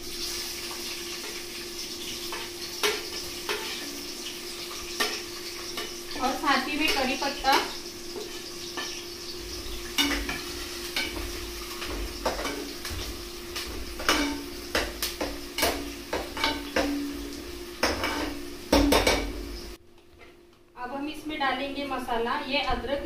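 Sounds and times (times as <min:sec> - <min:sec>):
food sizzling in hot oil: 0:00.0 - 0:19.8
metal spoon scraping a pot: 0:17.9 - 0:18.4.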